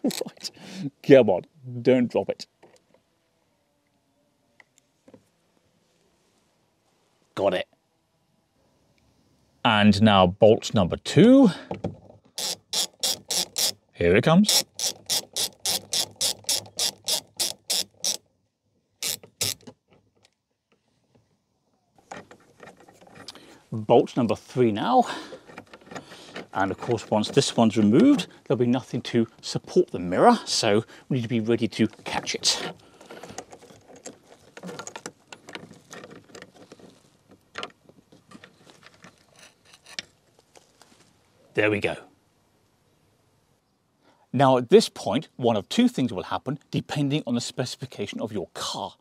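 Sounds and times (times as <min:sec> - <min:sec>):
socket ratchet clicking: 0:12.4 - 0:13.8, 0:14.5 - 0:18.2, 0:19.0 - 0:19.8.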